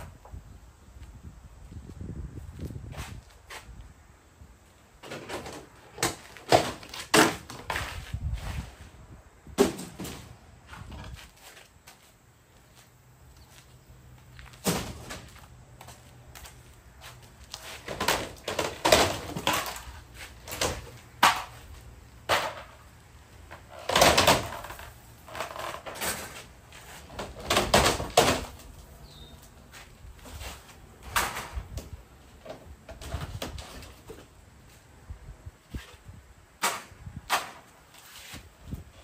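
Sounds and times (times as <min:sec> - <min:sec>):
wooden knocks and bangs: 0:09.6 - 0:11.2, 0:27.2 - 0:28.7.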